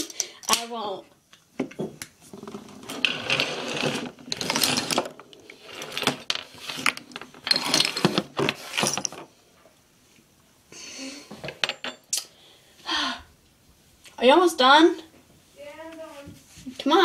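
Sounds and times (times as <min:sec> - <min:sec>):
objects clattering and scraping: 0:01.6 - 0:09.8.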